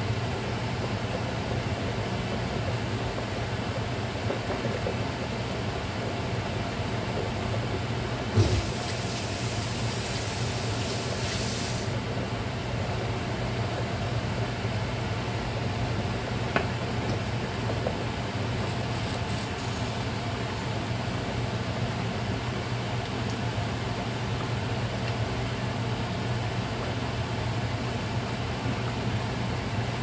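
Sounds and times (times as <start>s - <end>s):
water boiling in a pot: 0.0s - 30.0s
high hissing: 8.4s - 12.0s.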